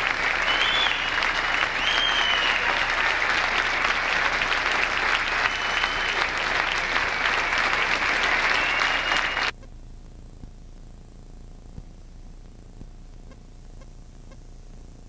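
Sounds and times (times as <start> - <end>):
audience applause: 0.0 - 9.5.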